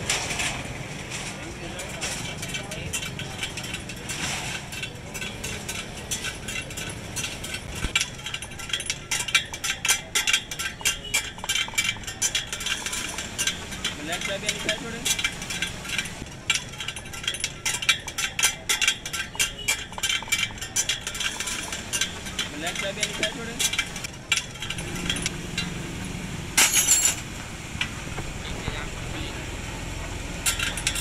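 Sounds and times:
spoke wrench clicking on spokes: 4.7 - 25.8.

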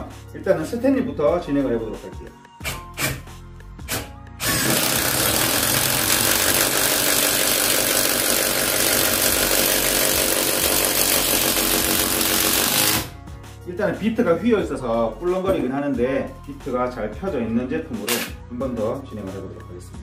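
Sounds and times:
impact driver hammering: 3.9 - 13.1.

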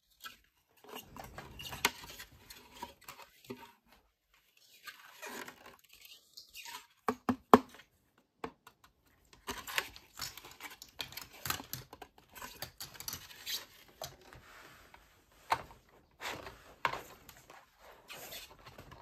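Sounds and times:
plastic toy pieces clicking: 9.6 - 13.6.

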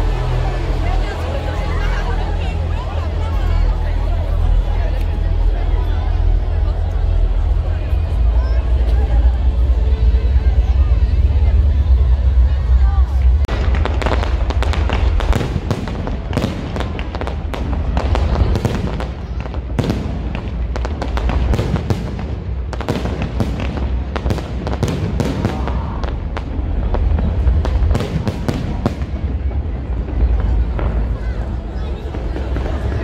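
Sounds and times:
low fireworks rumble: 0.0 - 33.0
fireworks crackling and popping: 13.2 - 33.0.

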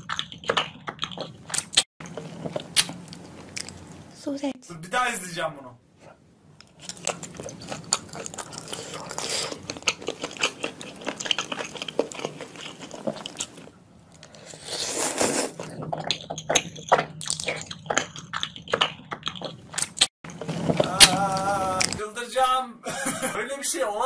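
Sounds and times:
wet chewing and lip smacking: 0.0 - 3.9, 6.6 - 22.0
noodle slurp: 6.7 - 22.0.

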